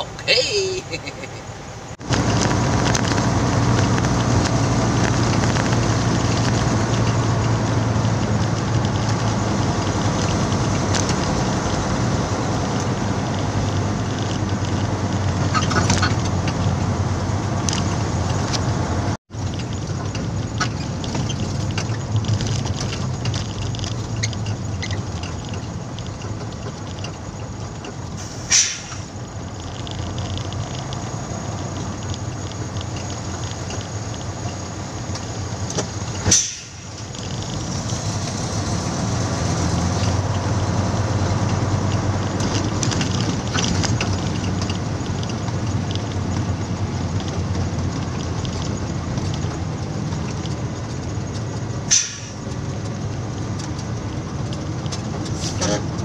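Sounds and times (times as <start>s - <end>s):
truck diesel engine drone: 0.0s - 56.0s
short sharp hiss: 28.2s - 29.1s, 36.3s - 36.9s, 51.9s - 52.4s.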